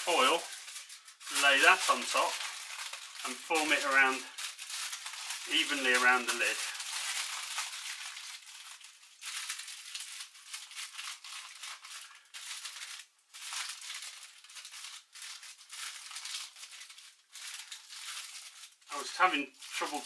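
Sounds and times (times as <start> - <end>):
aluminium foil crinkling: 0.0 - 20.0.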